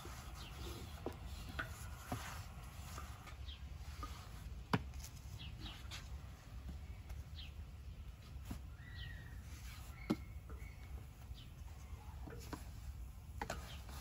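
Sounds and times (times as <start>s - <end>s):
high bird chirps: 8.7s - 12.1s.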